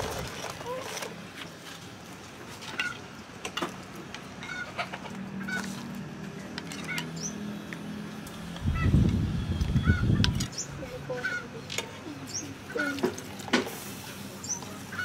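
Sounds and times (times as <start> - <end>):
chickens clucking: 4.4 - 5.8, 9.7 - 13.7.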